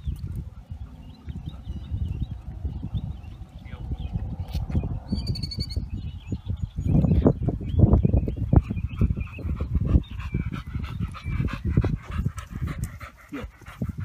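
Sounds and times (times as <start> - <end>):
dog panting: 8.6 - 14.0.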